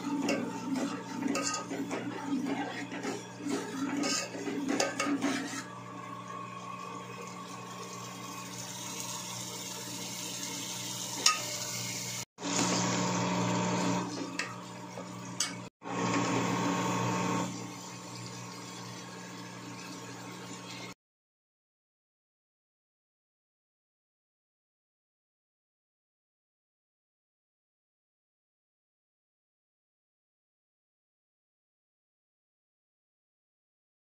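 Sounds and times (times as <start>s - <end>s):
frying sizzle: 0.0s - 21.0s
metal spoon clinking on pot: 1.2s - 1.9s.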